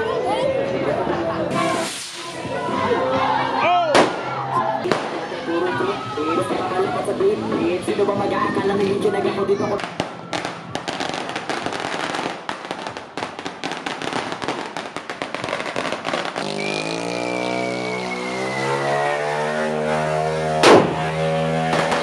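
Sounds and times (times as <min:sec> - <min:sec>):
firecrackers popping: 0:01.5 - 0:02.6, 0:04.9 - 0:05.5, 0:09.8 - 0:18.0, 0:20.6 - 0:22.0
falling high tone: 0:16.5 - 0:20.6.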